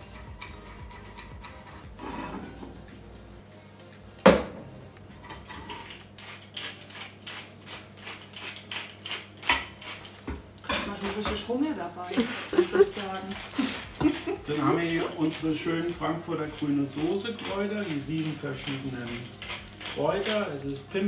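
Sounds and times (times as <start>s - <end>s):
pepper mill grinding: 0.0s - 2.0s, 5.4s - 10.2s, 12.1s - 21.0s.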